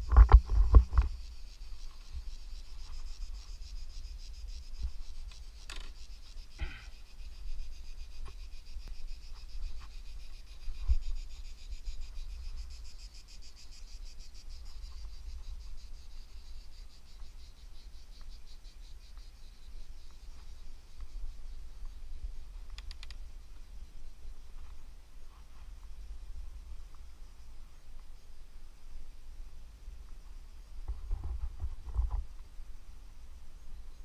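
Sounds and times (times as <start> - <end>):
cicadas buzzing: 0.0 - 34.0
sharp clicks: 22.7 - 23.2.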